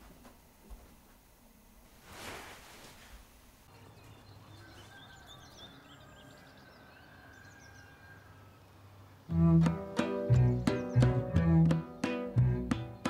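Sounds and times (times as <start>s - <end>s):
small birds chirping: 3.7s - 9.3s, 10.3s - 13.0s
plucked-string music: 9.3s - 13.0s.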